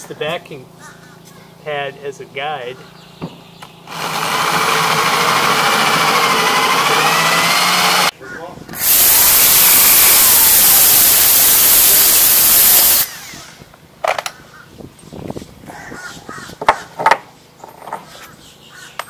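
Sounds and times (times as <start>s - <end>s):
crows cawing: 0.8s - 1.5s, 15.7s - 16.9s
drill hole saw grinding: 3.9s - 8.1s, 8.8s - 13.6s.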